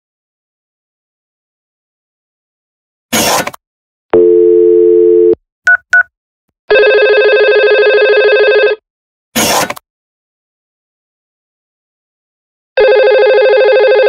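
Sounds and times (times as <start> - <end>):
phone dial tone: 4.1 - 6.0, 6.7 - 8.8, 12.8 - 14.0
short keypad tones: 4.2 - 6.1.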